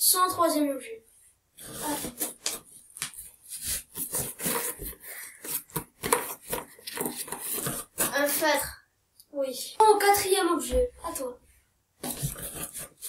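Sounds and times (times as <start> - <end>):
hands scratching inside cardboard box: 1.6 - 8.4, 12.0 - 13.0.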